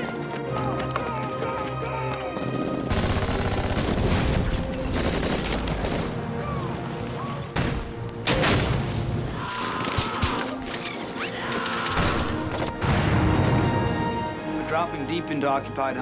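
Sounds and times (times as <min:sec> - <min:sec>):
music: 0:00.0 - 0:16.0
rapid gunfire: 0:02.8 - 0:06.2.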